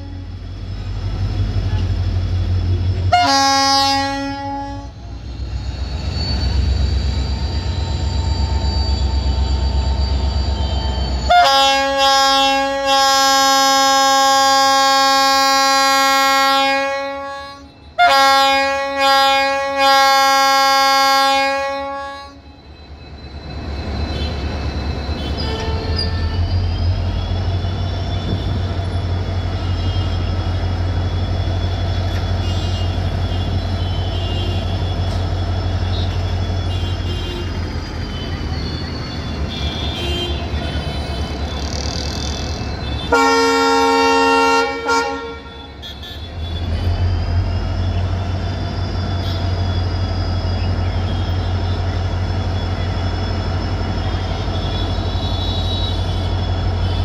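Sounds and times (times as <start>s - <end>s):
locomotive horn blasts: 0.0s - 0.3s, 3.1s - 5.0s, 11.2s - 22.4s, 32.4s - 35.2s, 42.8s - 46.8s, 54.6s - 57.0s.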